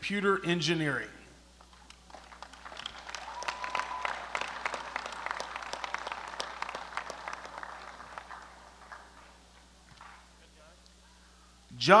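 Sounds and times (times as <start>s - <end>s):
crowd applauding: 1.8s - 9.4s.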